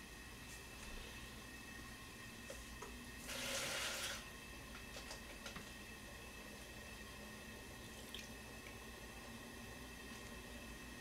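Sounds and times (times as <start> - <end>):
kitchen tap running: 3.2 - 5.7.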